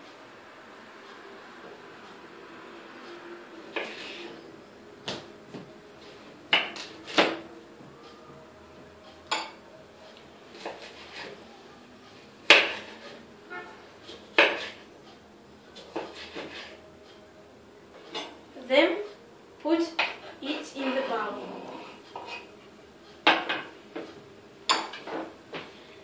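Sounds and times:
knife chopping on wooden board: 6.5s - 7.4s, 12.5s - 12.9s, 14.4s - 14.8s.

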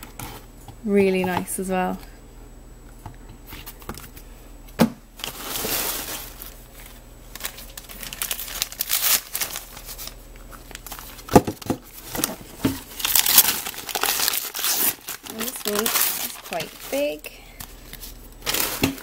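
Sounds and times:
paper crinkling and rustling: 5.2s - 19.0s.

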